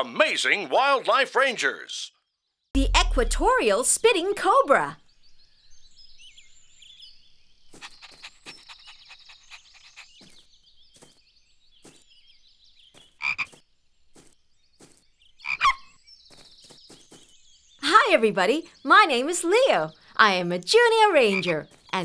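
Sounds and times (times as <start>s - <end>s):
faint high chirping: 4.7s - 13.5s.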